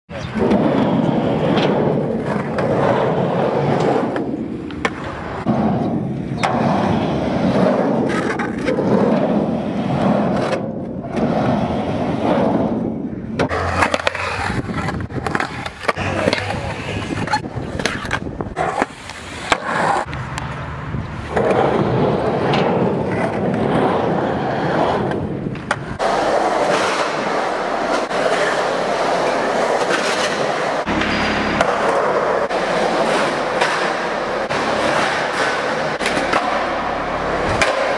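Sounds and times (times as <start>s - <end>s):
skateboard wheels rolling on concrete: 0.1s - 37.9s
skateboard clacking on concrete: 13.3s - 24.1s, 24.8s - 37.9s.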